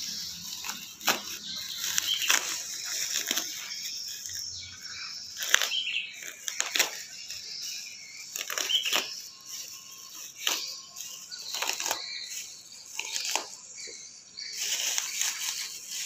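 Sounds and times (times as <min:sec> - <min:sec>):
scissors snipping: 0:00.0 - 0:12.0
plastic packaging crinkling: 0:00.0 - 0:16.0.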